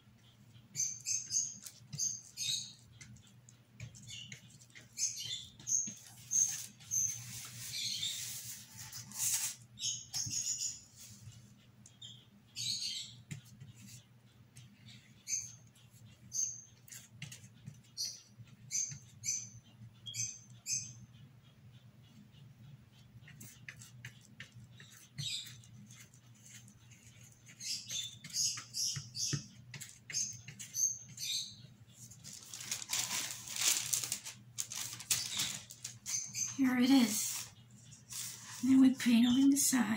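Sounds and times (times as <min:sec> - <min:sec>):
small bird chirping: 0:00.1 - 0:39.9
paintbrush scratching on cardboard: 0:04.0 - 0:09.6, 0:23.3 - 0:31.3, 0:37.0 - 0:39.1
cardboard rustling: 0:32.1 - 0:36.0.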